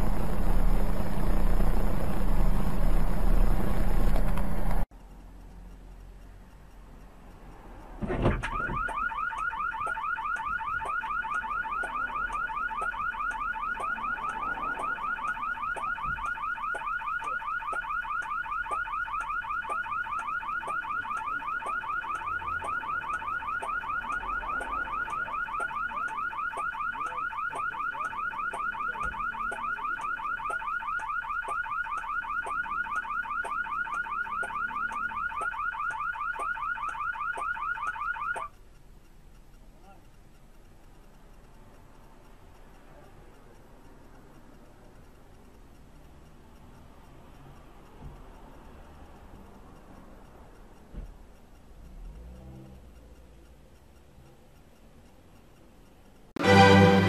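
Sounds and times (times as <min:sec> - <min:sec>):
car alarm warbling: 0:08.2 - 0:38.5.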